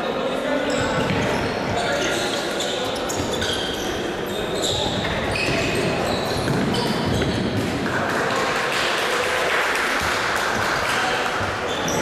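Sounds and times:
sneakers squeaking on court: 0.7 - 7.7, 11.7 - 12.0
ball kicks: 4.8 - 7.8.

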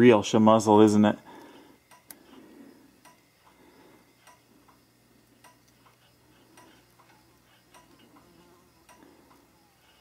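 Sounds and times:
turn signal flasher ticking: 1.8 - 2.3, 2.9 - 10.0.

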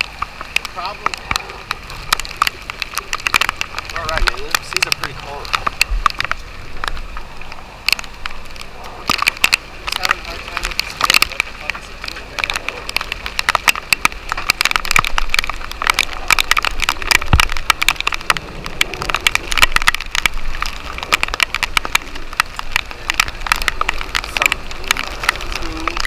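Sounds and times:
heavy rain pelting: 0.0 - 26.0.

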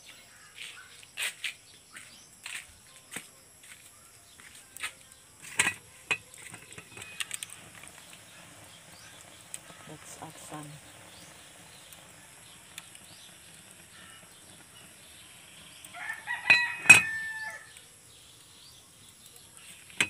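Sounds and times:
rooster crowing: 15.8 - 17.8.

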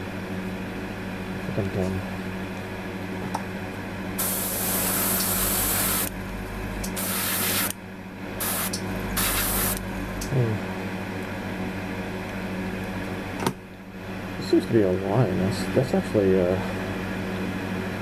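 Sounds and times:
low background hum: 0.0 - 18.0
airbrush spraying hiss: 4.2 - 6.1, 7.0 - 7.7, 8.4 - 9.8.

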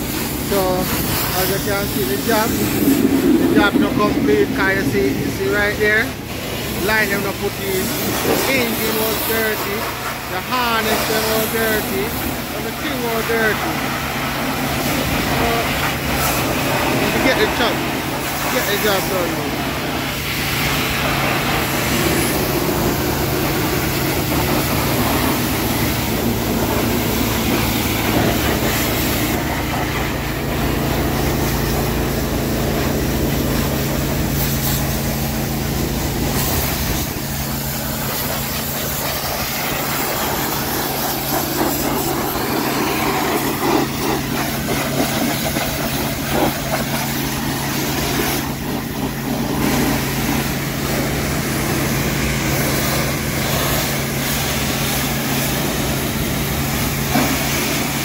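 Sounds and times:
pressure washer water jet hissing: 0.0 - 58.0
steady engine hum: 0.0 - 58.0.

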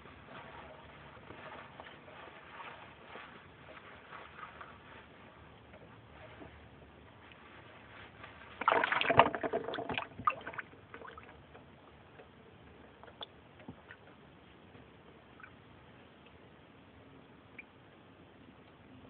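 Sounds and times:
splashing in shallow water: 8.5 - 11.4.

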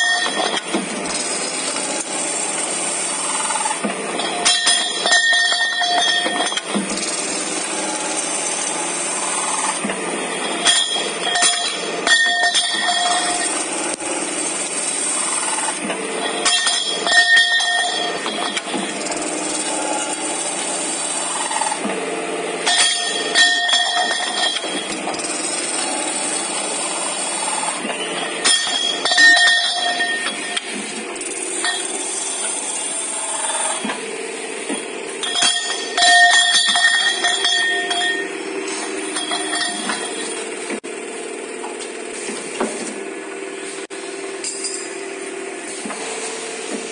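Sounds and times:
ringing metallic tone: 0.0 - 0.6, 4.2 - 6.7, 10.3 - 13.6, 16.2 - 18.9, 22.6 - 25.0, 28.0 - 30.7, 31.5 - 32.1, 34.8 - 40.6
pipe machine running: 0.0 - 46.9
metallic clanks: 4.2 - 6.9, 9.6 - 13.6, 15.8 - 19.1, 22.6 - 25.2, 27.8 - 30.9, 34.6 - 40.8.

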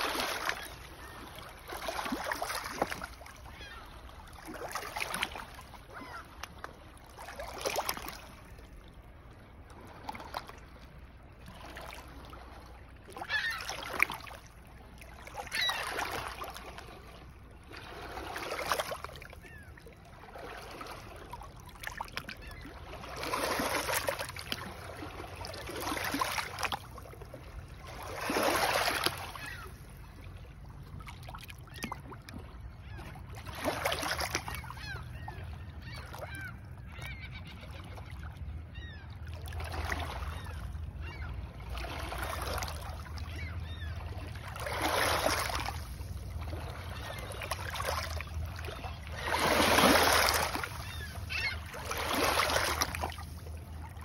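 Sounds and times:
waves washing over stones: 49.3 - 50.7.

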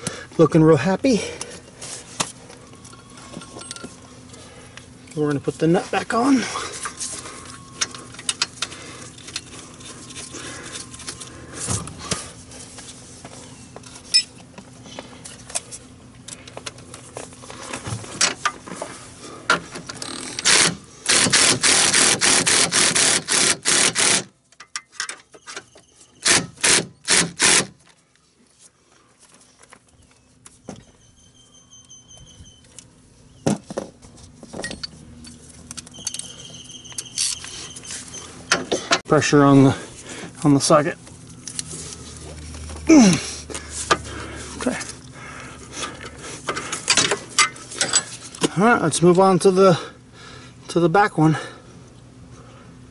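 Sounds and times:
clicks and scrapes of tools: 34.5 - 39.0, 45.9 - 48.5.

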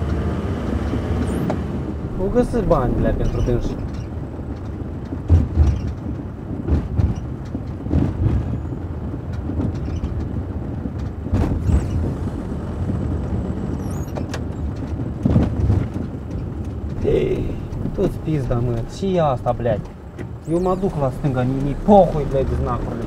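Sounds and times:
engine and road rumble: 0.0 - 23.0
vehicle body thumping over bumps: 1.9 - 13.1, 14.0 - 23.0.

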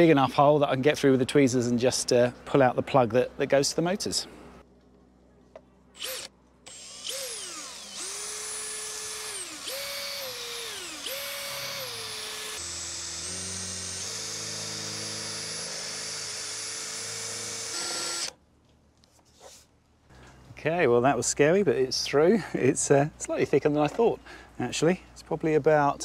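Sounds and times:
cordless drill whining: 6.0 - 18.4.

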